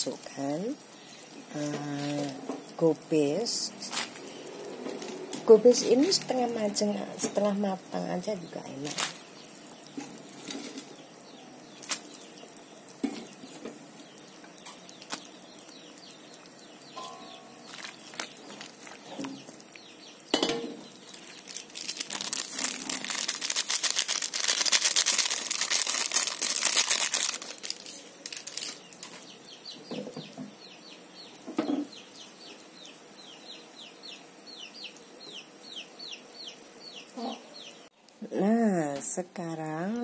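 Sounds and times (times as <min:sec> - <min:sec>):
plastic sachet rustling: 0:08.8 - 0:09.3, 0:17.6 - 0:19.4, 0:21.0 - 0:29.2.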